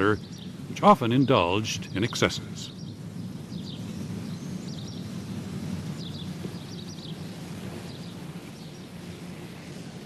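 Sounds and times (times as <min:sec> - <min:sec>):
low steady background noise: 0:00.0 - 0:10.0.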